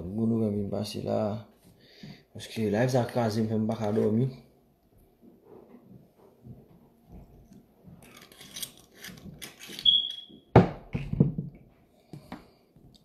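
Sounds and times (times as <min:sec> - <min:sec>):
short high beep: 0:09.8 - 0:10.3.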